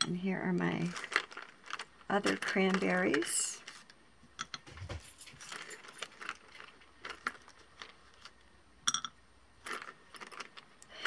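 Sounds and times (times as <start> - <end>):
clay beads clicking on paper: 0.8 - 4.0, 9.6 - 11.0.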